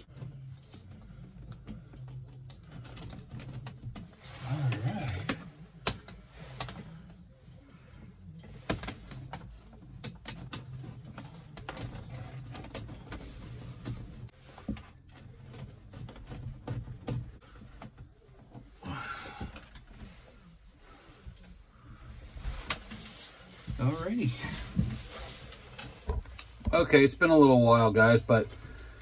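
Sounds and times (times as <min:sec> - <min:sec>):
small clicks and scrapes of wires: 0:21.2 - 0:26.7.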